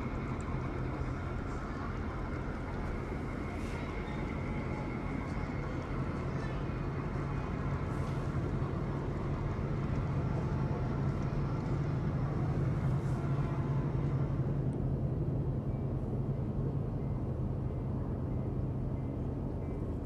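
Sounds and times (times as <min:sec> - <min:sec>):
model train rumbling on track: 0:00.0 - 0:14.8.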